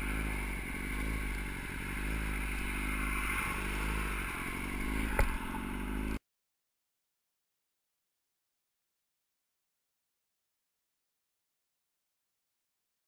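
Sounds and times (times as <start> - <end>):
motorcycle engine running: 0.0 - 6.2.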